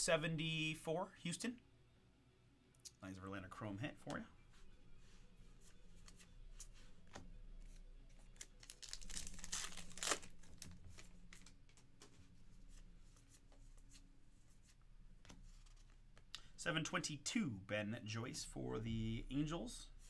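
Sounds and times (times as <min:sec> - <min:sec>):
card pack wrapper tearing: 0:08.3 - 0:11.5.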